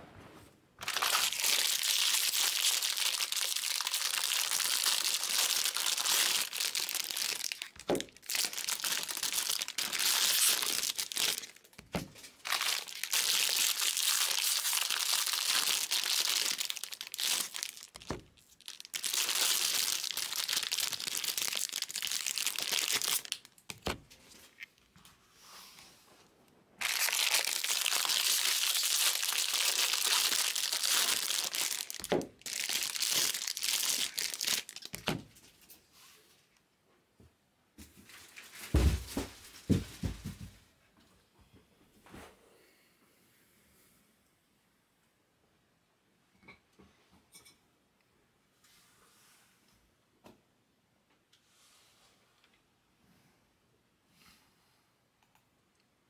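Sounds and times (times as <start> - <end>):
foil wrappers crinkling and tearing: 0.8 - 24.7, 26.8 - 35.2.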